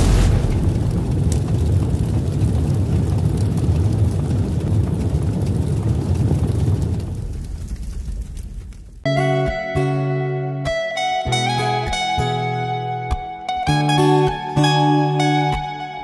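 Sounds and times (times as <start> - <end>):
deep rumbling whoosh: 0.0 - 9.0.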